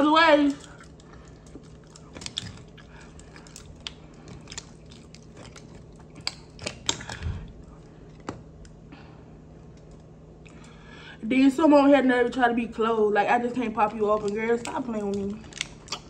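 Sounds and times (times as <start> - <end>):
wet chewing and mouth smacks: 0.5 - 8.8, 13.9 - 16.0
mussel shells clicking: 14.2 - 16.0.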